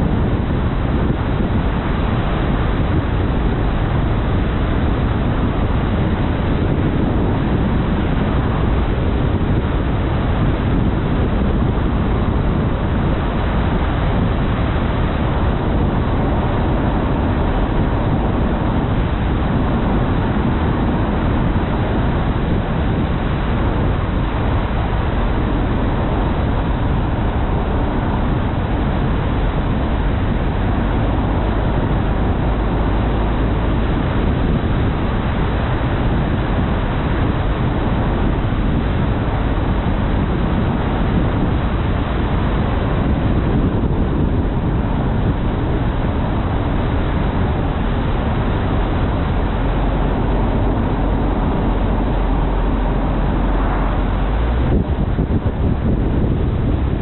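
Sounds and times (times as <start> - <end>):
car road and wind noise: 0.0 - 57.0.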